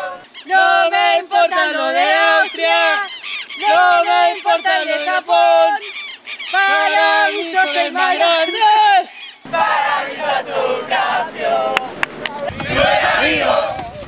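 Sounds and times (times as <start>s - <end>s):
voices singing fan chant: 0.0s - 14.0s.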